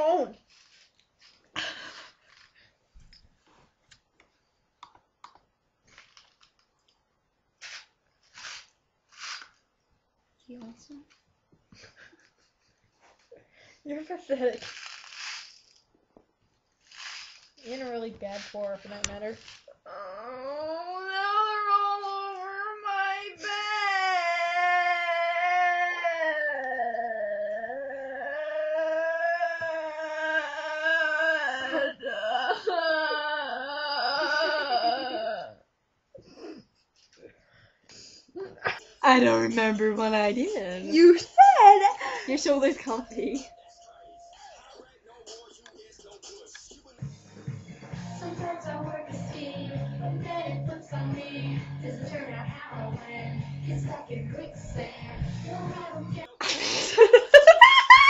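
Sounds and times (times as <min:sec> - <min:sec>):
short hissing bursts: 0:07.6 - 0:09.6, 0:14.6 - 0:15.8, 0:16.8 - 0:18.6
girl singing wordless notes: 0:48.2 - 0:56.4.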